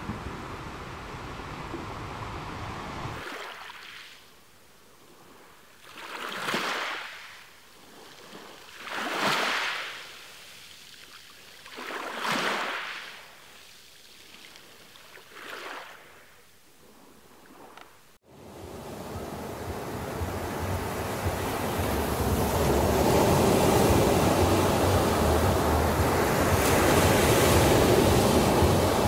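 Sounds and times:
surf breaking and washing ashore: 0.0 - 4.3, 5.0 - 29.0
small waves lapping: 0.0 - 29.0.

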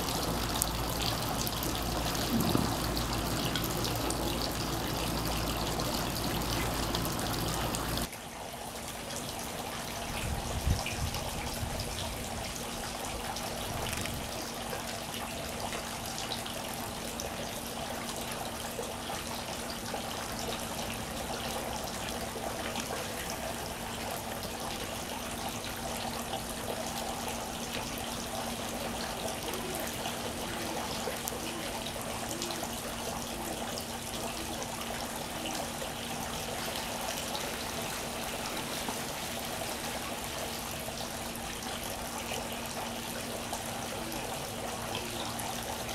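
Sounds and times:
constant low hum: 0.0 - 8.1.

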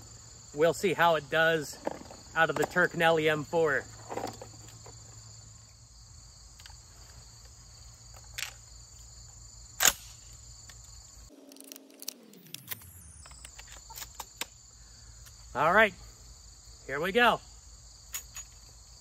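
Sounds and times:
crickets chirping: 0.0 - 19.0
low tone sliding down: 11.3 - 14.0.

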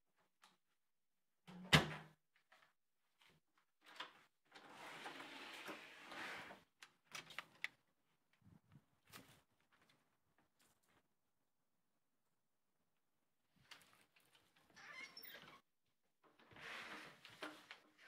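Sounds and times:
door sliding open: 4.6 - 6.6.

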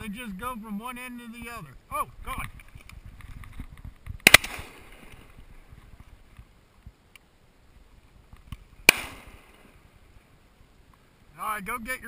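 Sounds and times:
shotgun shots: 4.2 - 5.3, 8.8 - 9.7.

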